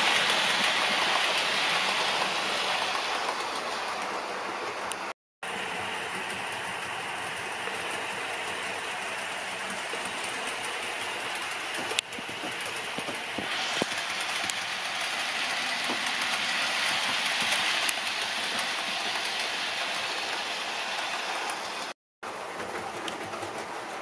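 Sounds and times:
model train motor whirring: 0:05.6 - 0:21.8.

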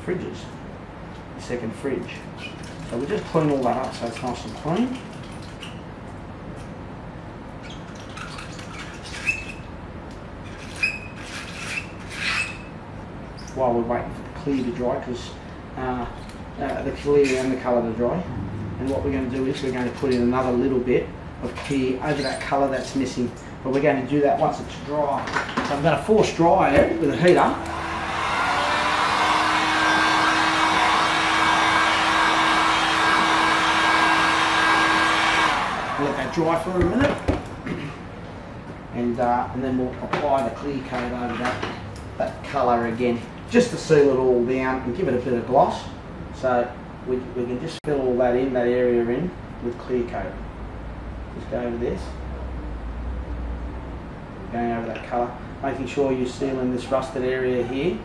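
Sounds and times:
low room hum: 0:00.0 - 0:58.0
high squeak: 0:10.6 - 0:12.7
heat gun blowing air: 0:27.7 - 0:36.2.

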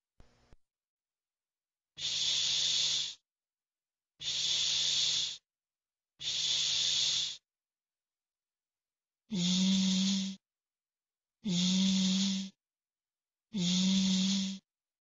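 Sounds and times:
person making sh sound: 0:02.0 - 0:03.2, 0:04.2 - 0:05.4, 0:06.2 - 0:07.4, 0:09.3 - 0:10.4, 0:11.5 - 0:12.6, 0:13.6 - 0:14.6.

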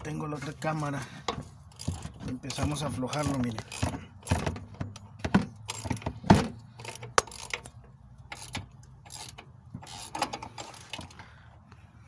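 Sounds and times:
metal wrench clicking on nut: 0:01.7 - 0:06.0, 0:06.8 - 0:11.2.

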